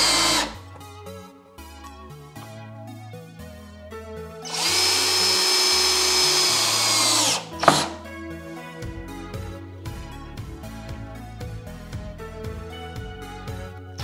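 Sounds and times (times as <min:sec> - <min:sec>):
cordless drill drilling into wood: 0:00.0 - 0:00.6, 0:04.5 - 0:08.0
background music: 0:00.0 - 0:14.0.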